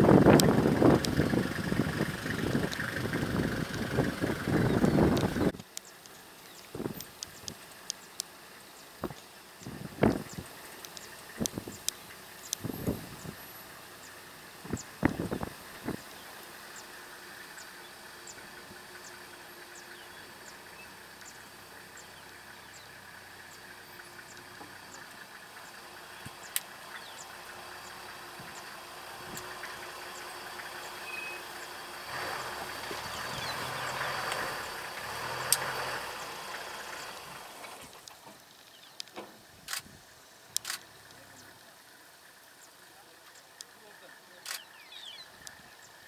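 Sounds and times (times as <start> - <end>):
vehicle engine idling: 0.0 - 46.0
faint high ticking: 0.2 - 39.8
sharp clicks: 0.3 - 1.2, 4.7 - 8.3, 9.0 - 12.7, 24.2 - 27.2, 33.2 - 36.4, 37.0 - 39.9, 40.5 - 41.7, 44.4 - 45.6.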